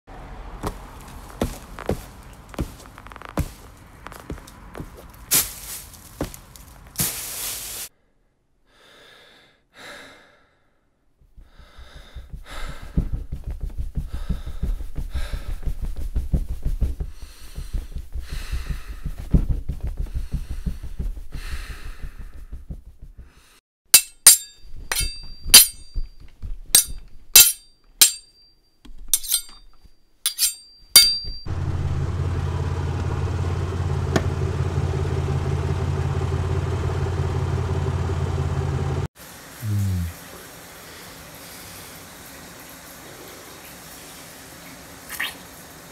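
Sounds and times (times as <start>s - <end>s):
low rumble with crackling: 0.4s - 5.3s, 31.5s - 39.1s
sharp metallic clanking hits: 24.0s - 26.1s, 26.8s - 28.4s, 30.3s - 31.5s
deep engine-like hum: 31.5s - 40.2s.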